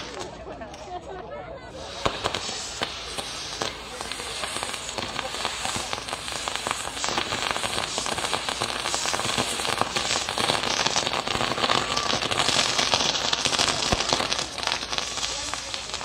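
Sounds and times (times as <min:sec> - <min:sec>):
fireworks crackling and popping: 0:00.0 - 0:16.0.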